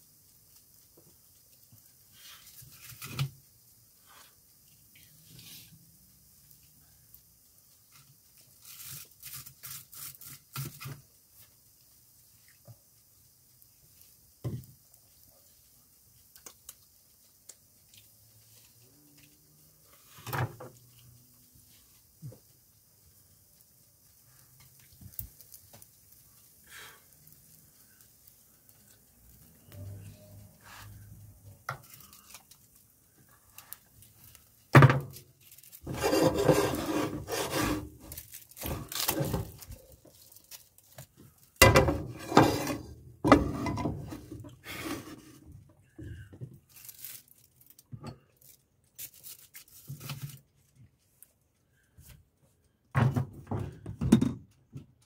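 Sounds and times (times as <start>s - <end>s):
knife scraping toast in a pan: 35.8s - 39.4s, 41.8s - 45.2s.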